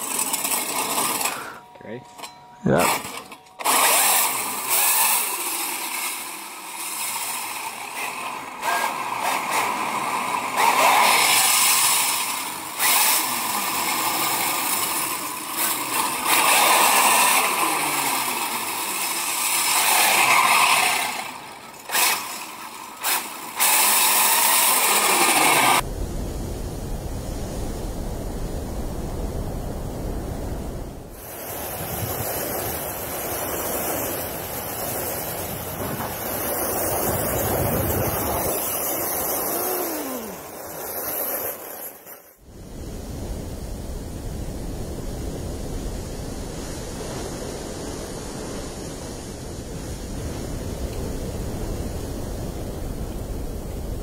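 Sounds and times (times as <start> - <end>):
electric motor whining: 0.0 - 25.8, 31.2 - 41.8
steel blade teeth scraping ice: 2.8 - 25.8, 32.0 - 42.4
wind rumble on microphone: 25.8 - 39.5, 42.4 - 54.0.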